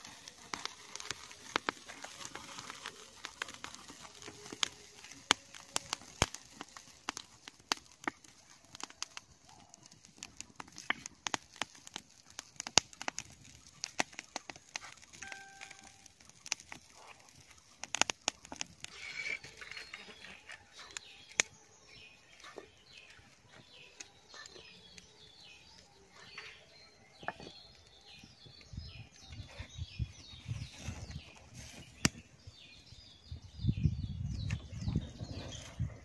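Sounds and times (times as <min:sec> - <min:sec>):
bird singing high falling notes: 0:15.2 - 0:16.2.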